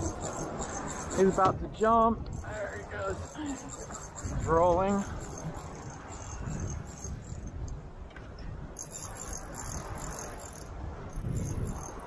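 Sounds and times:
fishing reel drag clicking buzz: 0:03.3 - 0:07.5, 0:08.8 - 0:12.0.

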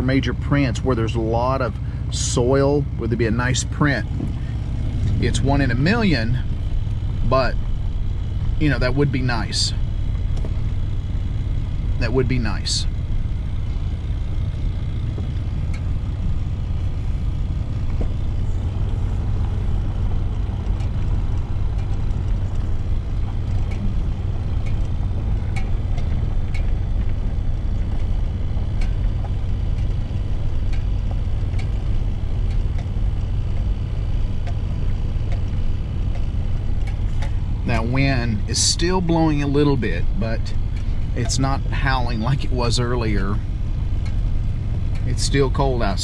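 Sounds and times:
vehicle rumbling on dirt road: 0:00.0 - 0:46.0
light ticks: 0:18.8 - 0:38.5, 0:39.7 - 0:42.4, 0:43.8 - 0:46.0.

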